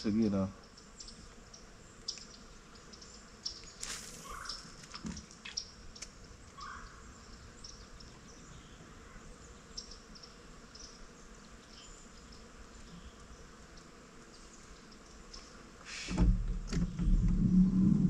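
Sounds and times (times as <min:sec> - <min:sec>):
low steady rumble: 0:16.4 - 0:18.0.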